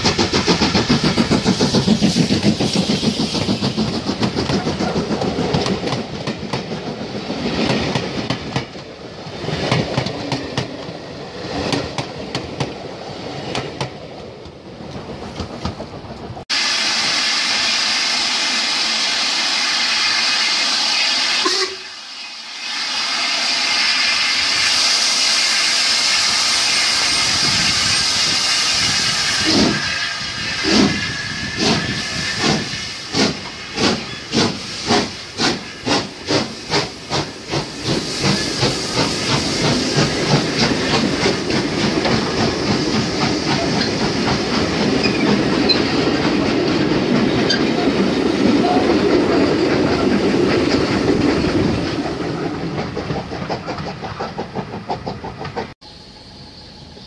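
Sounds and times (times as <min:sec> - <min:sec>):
steam locomotive hissing steam: 0:00.0 - 0:13.5, 0:16.4 - 0:57.0
train carriages clattering over rails: 0:00.0 - 0:16.4, 0:30.6 - 0:55.8.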